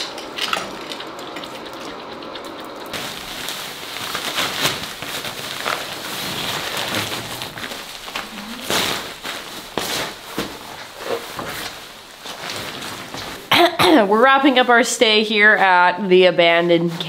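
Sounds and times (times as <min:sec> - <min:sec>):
sleeping pad rustling and crinkling: 0:02.9 - 0:13.5.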